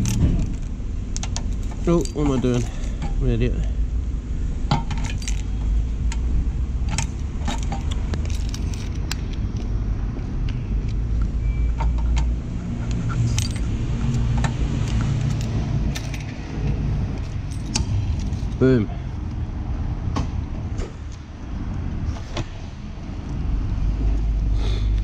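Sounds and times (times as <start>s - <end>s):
low rumble of traffic: 0.0s - 25.0s
keys jangling: 1.4s - 3.0s, 4.9s - 5.6s, 6.9s - 9.2s, 13.1s - 14.2s, 14.8s - 16.4s, 17.1s - 18.7s.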